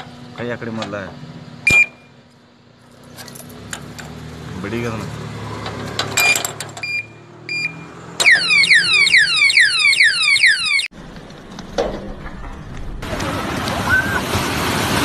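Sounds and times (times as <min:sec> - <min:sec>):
short beeps: 0:01.7 - 0:02.1, 0:06.2 - 0:10.1
alarm siren falling sweeps: 0:06.9 - 0:10.9.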